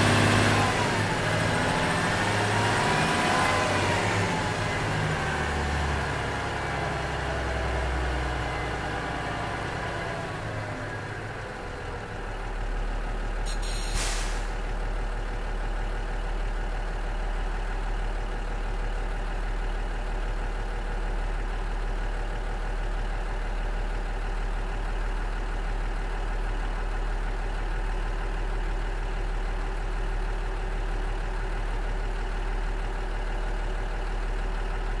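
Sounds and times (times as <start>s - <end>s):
diesel engine idling: 0.0s - 35.0s
brief hiss: 13.5s - 14.6s.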